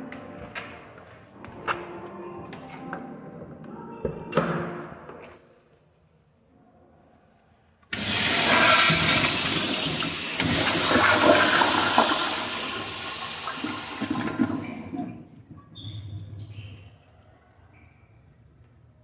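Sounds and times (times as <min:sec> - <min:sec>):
toilet flushing: 0:07.9 - 0:15.3.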